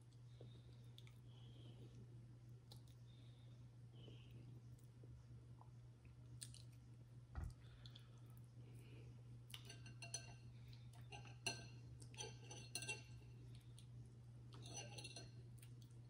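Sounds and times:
low electrical hum: 0:00.0 - 0:16.0
cutlery clinking on dishes: 0:09.6 - 0:10.4, 0:11.0 - 0:13.2, 0:14.6 - 0:15.4.

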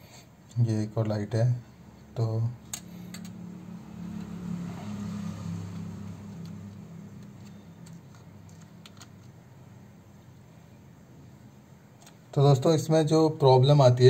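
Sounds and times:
plastic keyboard parts clicking: 0:07.2 - 0:09.4.

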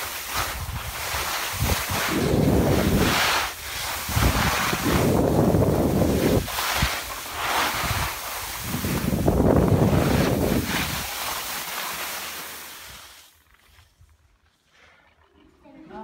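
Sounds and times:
skis scraping through snow: 0:00.0 - 0:14.7
wind buffeting microphone: 0:00.5 - 0:07.1, 0:07.7 - 0:11.1.

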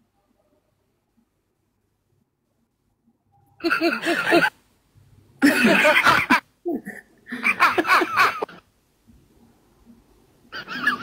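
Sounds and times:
person laughing: 0:03.6 - 0:04.5, 0:05.4 - 0:08.6.

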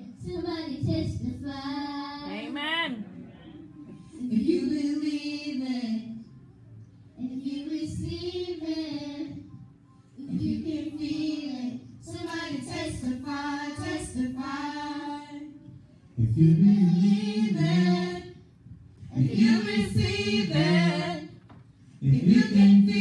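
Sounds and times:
adults singing: 0:10.2 - 0:18.4, 0:19.1 - 0:23.0.

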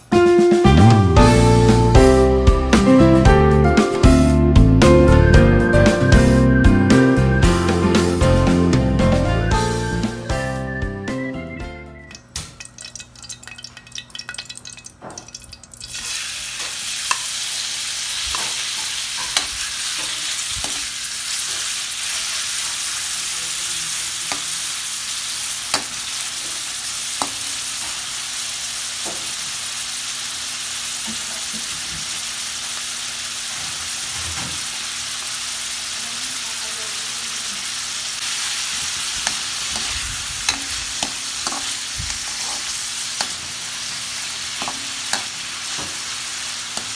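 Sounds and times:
meat sizzling in hot oil: 0:15.8 - 0:46.9
metal spatula scraping a wok: 0:38.4 - 0:46.1.

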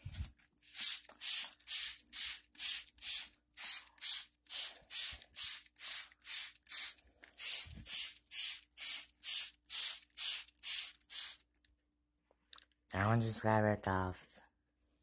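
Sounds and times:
spray bottle hissing squirts: 0:00.6 - 0:11.5.

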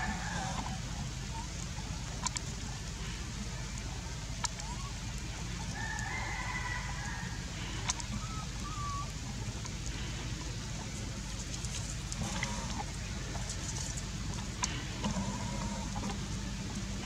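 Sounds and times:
rooster crowing: 0:00.0 - 0:00.8, 0:05.7 - 0:07.6
steady low hum: 0:00.0 - 0:17.0.

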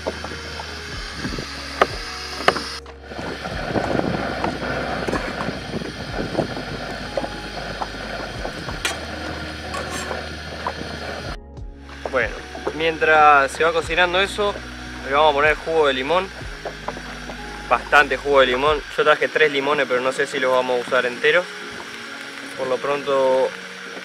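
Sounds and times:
knife scraping metal wok: 0:08.8 - 0:10.3.

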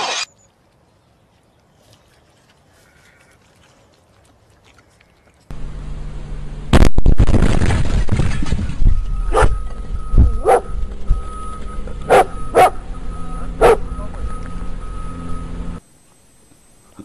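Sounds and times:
dog barking: 0:09.3 - 0:09.6, 0:10.4 - 0:10.7, 0:12.1 - 0:12.8, 0:13.6 - 0:13.9.

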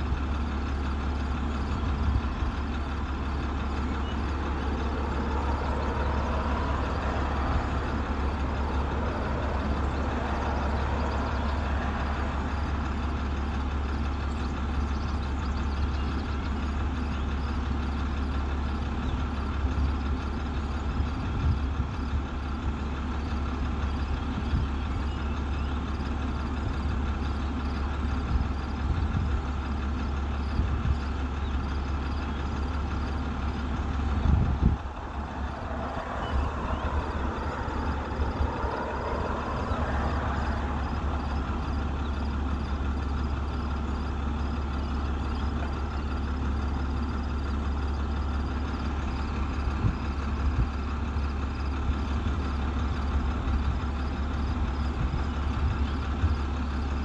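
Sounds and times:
engine idling: 0:00.0 - 0:57.0
faint wavering whistle: 0:34.3 - 0:45.5.

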